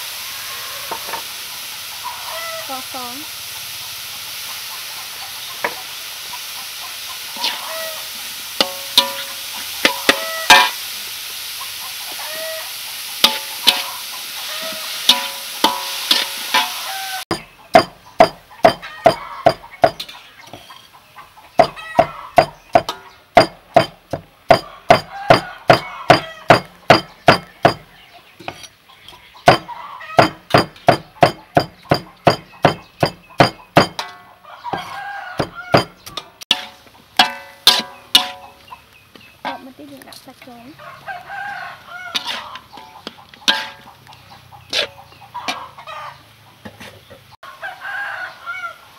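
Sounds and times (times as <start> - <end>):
food sizzling in a wok: 0.0 - 20.9, 21.5 - 38.7, 39.4 - 46.4
metal spatula scraping in a wok: 7.2 - 10.8, 12.7 - 20.9, 28.4 - 38.6, 42.1 - 44.0, 44.6 - 45.8
cleaver chopping on wooden board: 17.3 - 20.0, 21.6 - 27.8, 29.5 - 34.0
spatula clinking against pan: 17.8 - 20.1, 29.5 - 34.2, 34.8 - 38.6.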